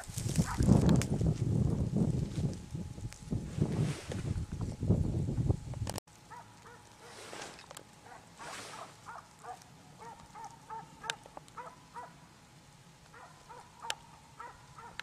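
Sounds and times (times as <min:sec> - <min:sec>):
hounds baying: 0:06.3 - 0:07.2, 0:08.0 - 0:12.2, 0:13.1 - 0:15.0.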